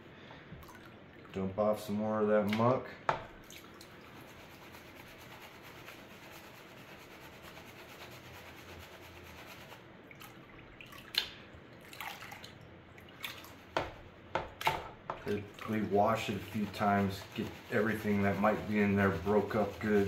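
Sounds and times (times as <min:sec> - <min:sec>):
water splashes: 0:02.5 - 0:04.1, 0:10.0 - 0:17.6
muddy water sloshing in a pan: 0:10.0 - 0:20.0.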